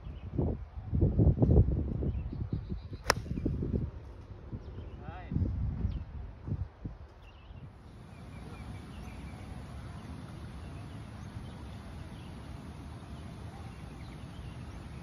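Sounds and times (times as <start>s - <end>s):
low rush of outdoor noise: 6.1s - 15.0s.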